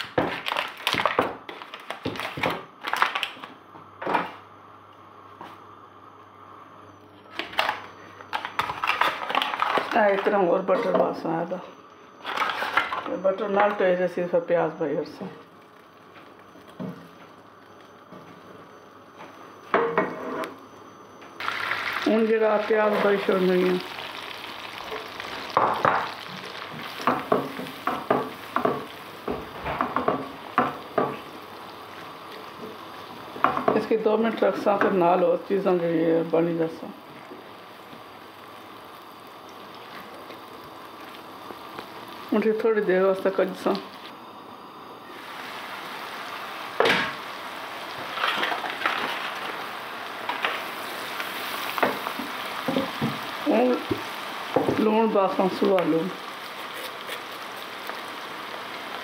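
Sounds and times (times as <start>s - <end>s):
onions sizzling in butter: 21.4s - 59.0s
spatula scraping and stirring: 56.4s - 57.7s.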